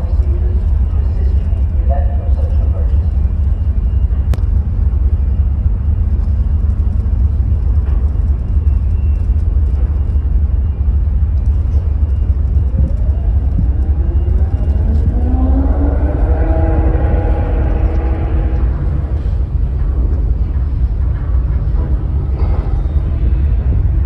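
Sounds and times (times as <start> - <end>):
faint machinery hum: 0.0 - 24.0
wind buffeting microphone: 0.0 - 24.0.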